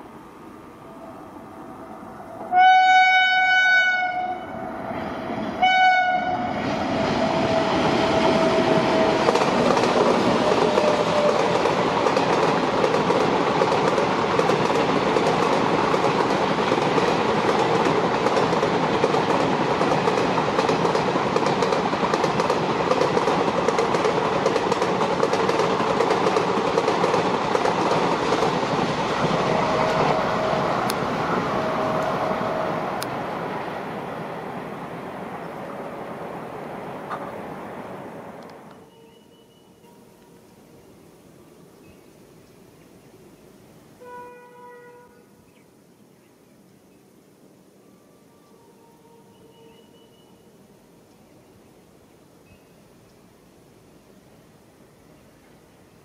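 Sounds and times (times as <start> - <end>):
locomotive horn: 2.3 - 4.7, 5.6 - 9.4, 29.3 - 33.0, 44.0 - 45.4, 47.9 - 50.2
train rumble and clickety-clack: 5.0 - 35.4, 36.8 - 38.8.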